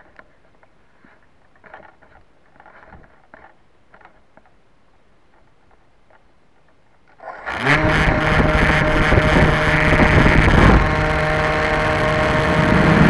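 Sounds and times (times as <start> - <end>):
electric motor and propeller whine: 7.2 - 13.0.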